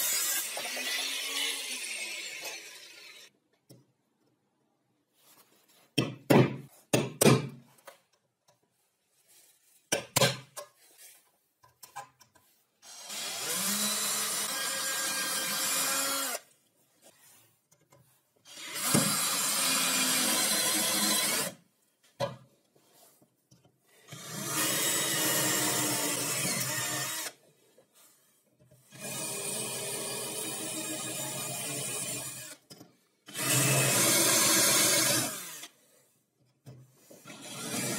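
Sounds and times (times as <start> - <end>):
cordless drill boring through steel: 0.0 - 3.3, 12.8 - 16.4, 18.5 - 21.6, 24.1 - 27.4, 28.9 - 32.6, 33.3 - 35.8, 37.2 - 37.9.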